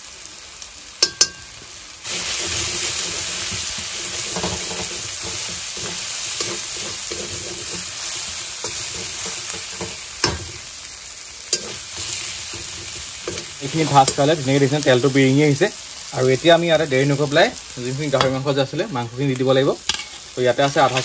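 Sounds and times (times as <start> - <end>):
food sizzling in oil: 0.0 - 21.0
metal spatula scraping and stirring: 1.1 - 10.7, 11.5 - 14.9, 19.9 - 21.0.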